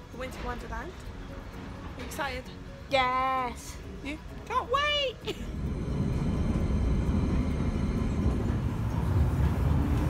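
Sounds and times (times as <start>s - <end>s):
track noise hiss: 5.2s - 10.0s
train low rumble: 5.3s - 10.0s.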